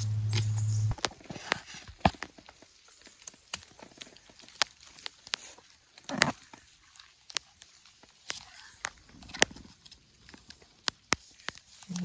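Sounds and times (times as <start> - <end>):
dry leaves and twigs crackling: 0.0 - 12.0
heavy rustle of leaves: 1.1 - 12.0.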